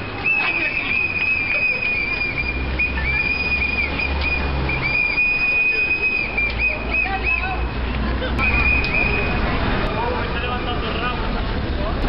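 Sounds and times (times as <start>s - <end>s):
street noise: 0.0s - 12.0s
whistle blasts: 0.2s - 7.6s, 8.4s - 9.4s.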